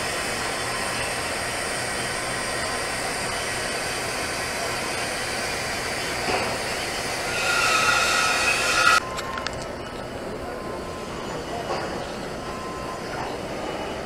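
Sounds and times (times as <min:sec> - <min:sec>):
welding arc hissing: 0:00.0 - 0:09.0.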